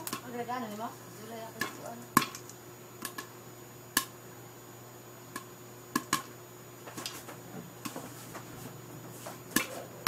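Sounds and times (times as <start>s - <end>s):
popcorn popping under a lid: 0.0s - 4.2s, 5.2s - 8.4s, 9.3s - 10.0s.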